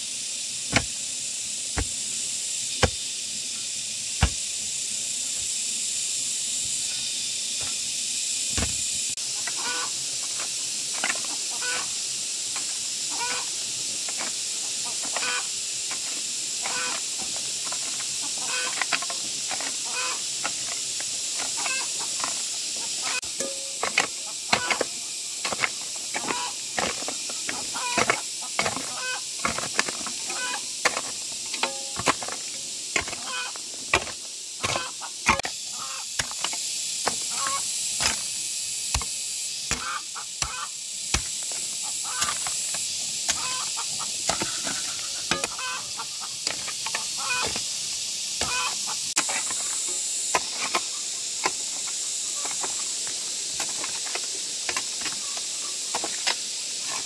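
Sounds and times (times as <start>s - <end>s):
steady high hiss: 0.0s - 57.0s
chickens clucking: 9.4s - 10.0s, 11.3s - 11.9s, 13.1s - 13.5s, 14.8s - 15.5s, 16.7s - 17.1s, 18.2s - 18.8s, 19.8s - 20.2s, 21.5s - 23.2s, 24.2s - 24.8s, 26.2s - 26.6s, 27.5s - 29.3s, 30.3s - 30.6s, 33.2s - 33.6s, 37.3s - 37.6s, 43.3s - 46.4s, 47.0s - 47.5s, 48.4s - 49.0s.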